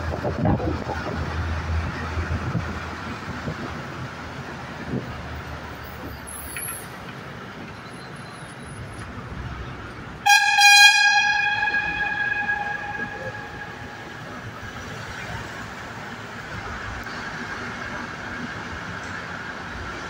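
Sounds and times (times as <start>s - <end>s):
road and tyre rumble: 0.0s - 20.0s
vehicle horn: 10.2s - 14.8s.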